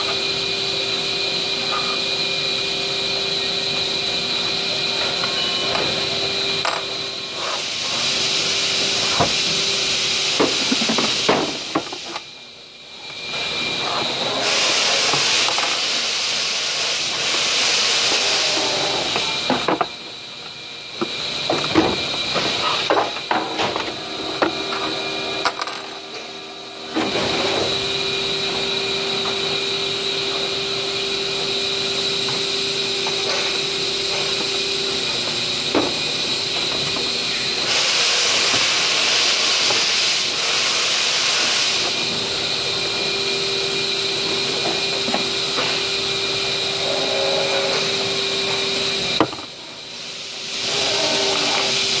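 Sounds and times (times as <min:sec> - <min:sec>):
machinery hum with high whine: 0:00.0 - 0:52.0
loud hiss: 0:14.4 - 0:19.5, 0:37.2 - 0:44.4, 0:49.8 - 0:52.0.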